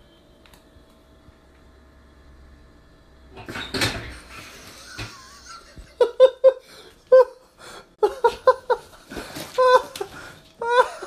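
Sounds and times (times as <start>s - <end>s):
person laughing: 4.4s - 11.0s.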